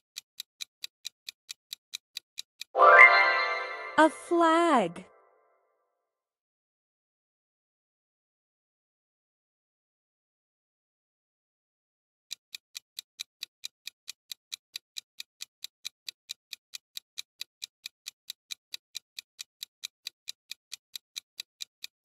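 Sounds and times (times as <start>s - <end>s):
fast clock ticking: 0.0s - 2.7s, 12.3s - 22.0s.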